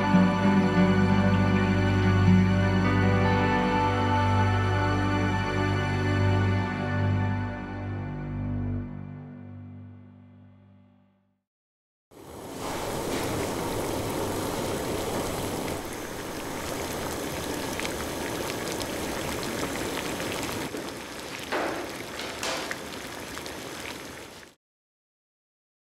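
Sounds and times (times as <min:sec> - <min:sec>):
water boiling in a pot: 0:12.2 - 0:24.6.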